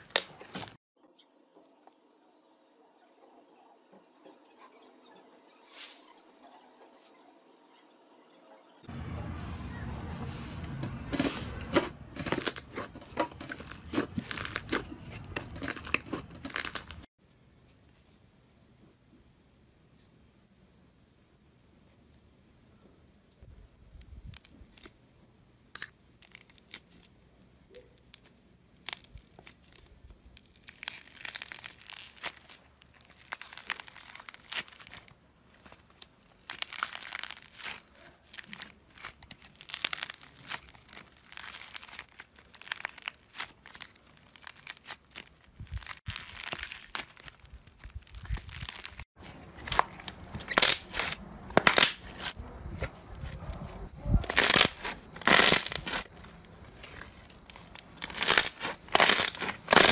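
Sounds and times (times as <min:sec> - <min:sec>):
slime crackling and tearing: 0:12.2 - 0:17.1, 0:25.8 - 0:27.2, 0:28.0 - 0:52.4, 0:54.2 - 0:59.9.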